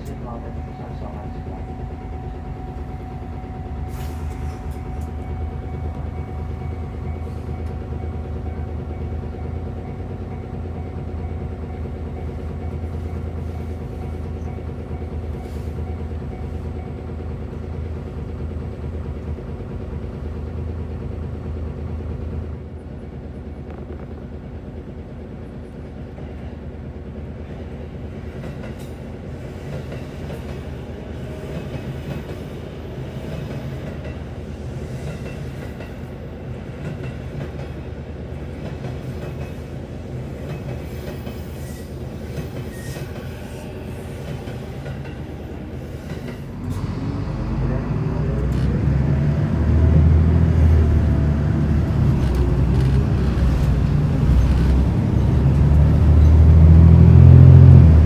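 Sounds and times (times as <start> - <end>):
bus diesel engine idling: 0.0 - 28.4
commuter train running: 0.0 - 58.0.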